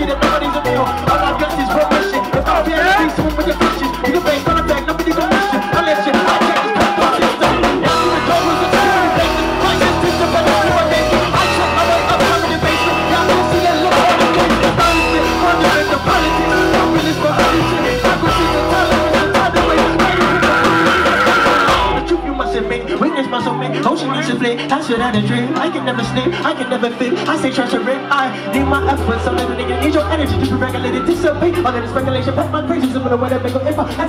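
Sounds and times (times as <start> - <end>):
drum kit: 0.0 - 22.4
keyboard: 0.0 - 34.0
man singing: 0.0 - 34.0
electric bass: 7.4 - 23.0.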